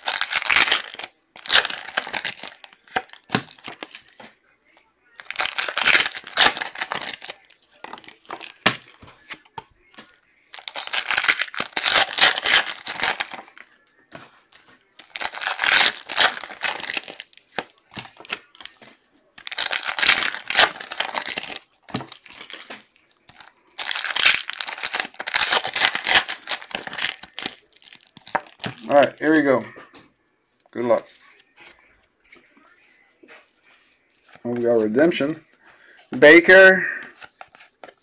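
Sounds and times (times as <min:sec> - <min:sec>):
foil wrappers tearing and crinkling: 0:00.0 - 0:04.0, 0:05.2 - 0:08.9, 0:10.5 - 0:13.6, 0:15.0 - 0:18.8, 0:19.4 - 0:29.1.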